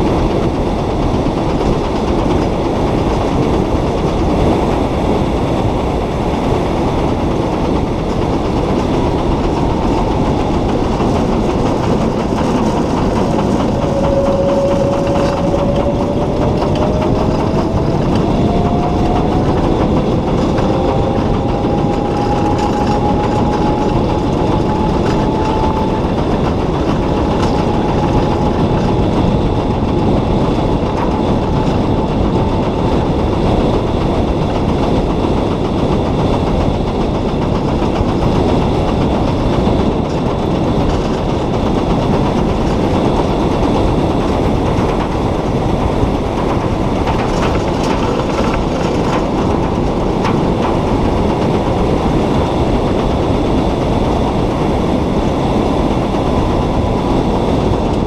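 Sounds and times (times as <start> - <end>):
wind and road noise: 0.0 - 58.0
electric motor whine: 9.0 - 33.2.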